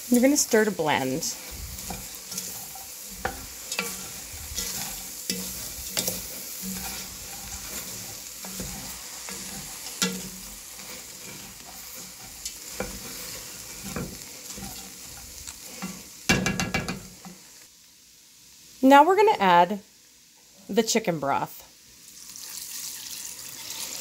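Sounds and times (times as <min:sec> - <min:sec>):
frying sizzle: 0:00.0 - 0:24.0
wooden spoon scraping pot: 0:00.5 - 0:17.3.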